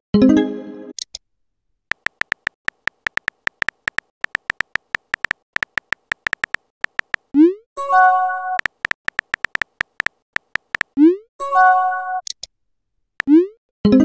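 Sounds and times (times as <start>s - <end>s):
keyboard tap clicks: 1.9s - 7.3s, 8.6s - 11.0s.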